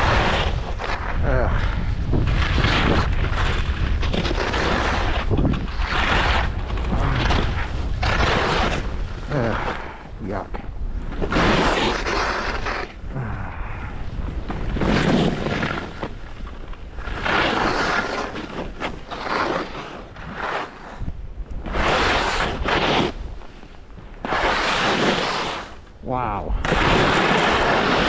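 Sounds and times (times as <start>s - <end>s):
wind buffeting microphone: 0.0s - 17.3s
skis scraping over snow: 0.0s - 26.0s, 26.6s - 28.0s.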